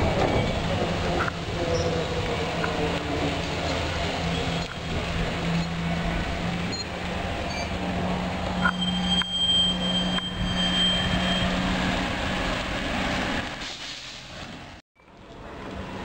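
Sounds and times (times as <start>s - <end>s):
trolleybus electric hum: 0.0s - 16.0s
thin high whine: 8.4s - 12.0s.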